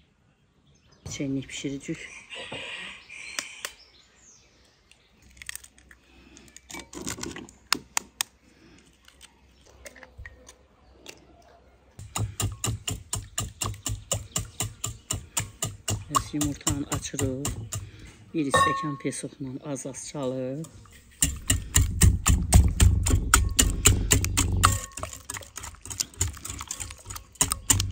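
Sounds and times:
eggs cracking on glass bowl: 0:05.3 - 0:06.0, 0:21.1 - 0:27.9.

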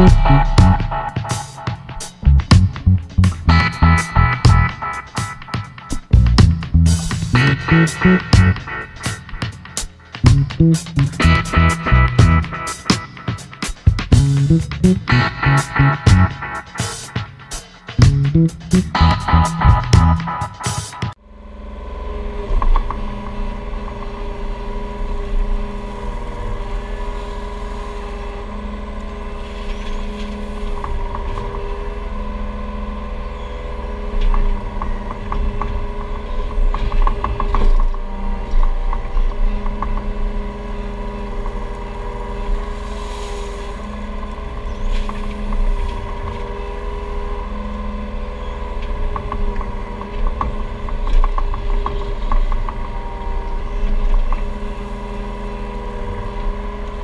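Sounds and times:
diesel engine running: 0:00.0 - 0:05.0, 0:06.1 - 0:16.6, 0:17.3 - 0:20.4.

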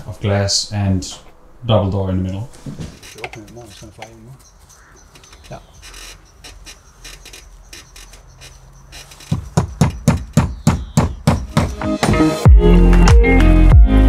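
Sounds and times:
loud thumps dropping in pitch: 0:09.3 - 0:13.2.

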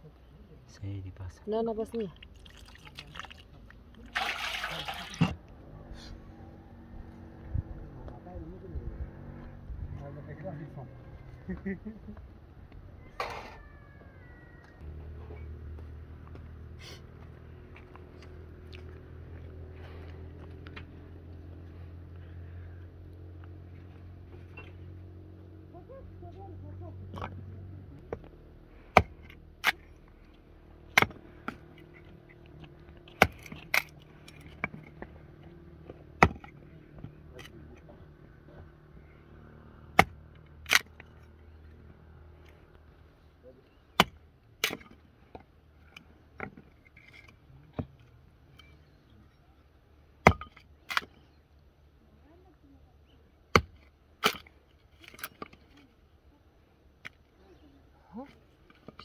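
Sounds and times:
hatchet chopping log: 0:28.0 - 0:29.8, 0:30.9 - 0:31.7, 0:33.1 - 0:34.0, 0:36.2 - 0:36.6, 0:39.9 - 0:41.0, 0:43.9 - 0:45.0, 0:50.2 - 0:51.1, 0:53.5 - 0:54.5.

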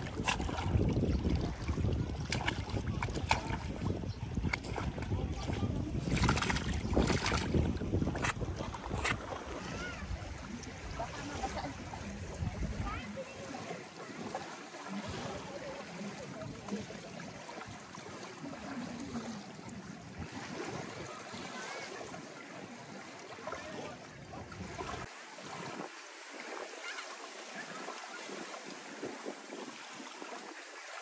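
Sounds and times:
wind noise: 0:00.0 - 0:13.2
water rushing: 0:00.0 - 0:31.0.

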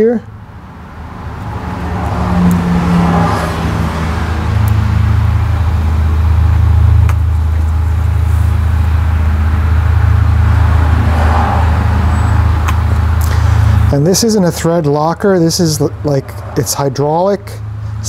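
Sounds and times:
low mechanical hum: 0:03.6 - 0:18.0.

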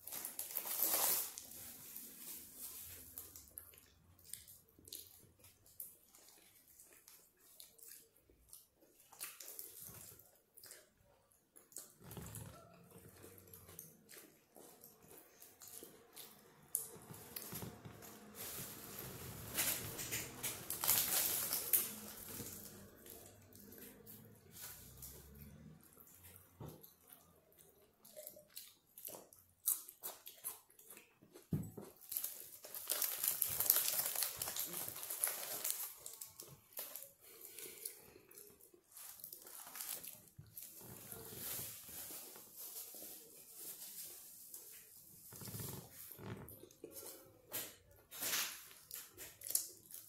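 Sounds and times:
wrap tearing and crinkling: 0:00.0 - 0:02.6, 0:18.2 - 0:22.5, 0:32.1 - 0:36.3
flatbread wrap crackly rustling: 0:00.0 - 0:50.0
chewing food: 0:02.1 - 0:41.6, 0:44.6 - 0:50.0.

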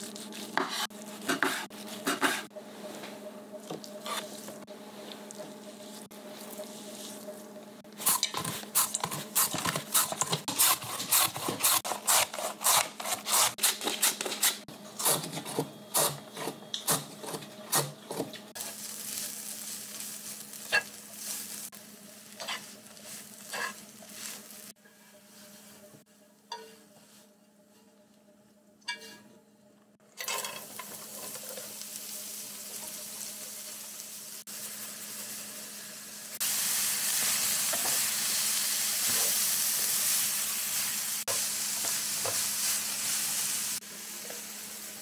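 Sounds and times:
food sizzling: 0:18.5 - 0:24.8, 0:30.1 - 0:45.0
clattering and scraping in frying pan: 0:30.2 - 0:31.7.

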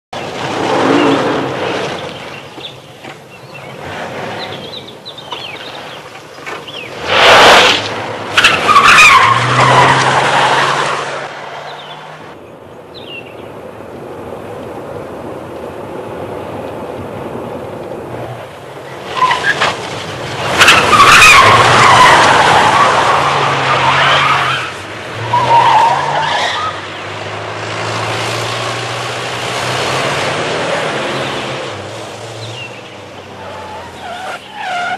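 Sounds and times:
car engines running: 0:00.2 - 0:34.9
tyres squealing and skidding: 0:00.6 - 0:02.1, 0:03.6 - 0:12.3, 0:18.9 - 0:28.4, 0:29.5 - 0:34.9.

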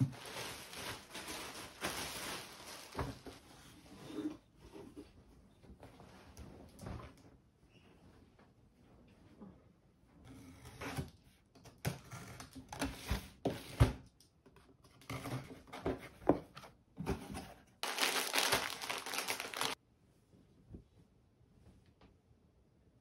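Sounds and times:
paper and plastic crinkling: 0:00.0 - 0:03.4, 0:17.8 - 0:19.8.

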